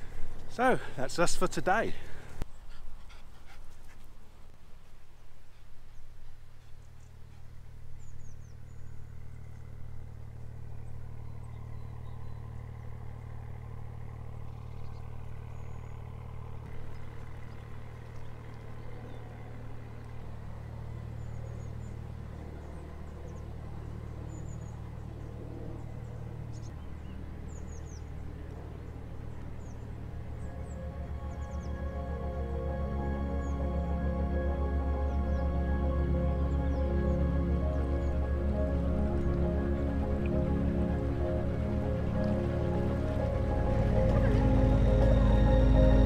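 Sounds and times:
boat diesel engine running: 0:00.0 - 0:02.4, 0:06.6 - 0:46.0
small birds chirping: 0:05.0 - 0:13.5, 0:14.3 - 0:46.0.

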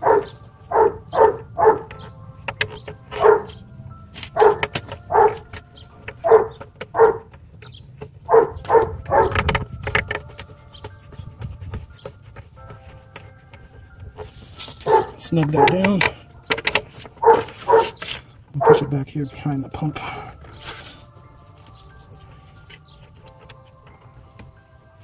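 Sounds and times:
dog barking: 0:00.0 - 0:02.0, 0:03.1 - 0:03.6, 0:04.4 - 0:05.4, 0:06.2 - 0:07.3, 0:08.3 - 0:09.4, 0:14.8 - 0:16.0, 0:17.2 - 0:18.0, 0:18.6 - 0:18.9.

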